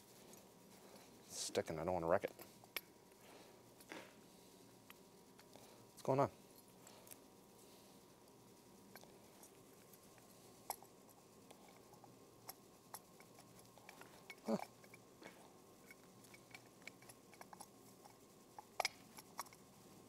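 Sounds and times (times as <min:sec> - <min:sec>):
small clicks and taps of parts: 0:15.8 - 0:19.6.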